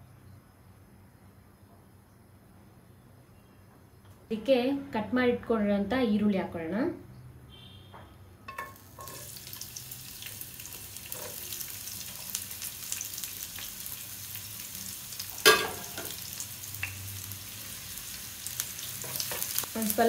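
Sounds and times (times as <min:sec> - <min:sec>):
onions sizzling in hot oil: 0:08.5 - 0:20.0.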